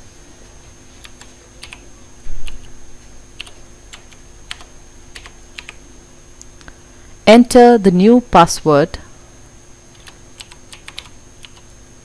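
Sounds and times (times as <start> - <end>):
keyboard keys clicking: 1.0 - 1.8, 3.4 - 5.8, 10.0 - 11.6.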